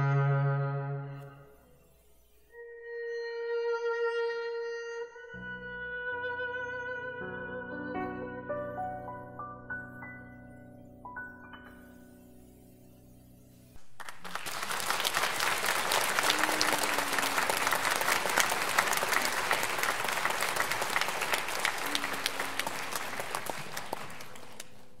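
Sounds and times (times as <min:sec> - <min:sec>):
audience applauding: 0:13.8 - 0:25.0.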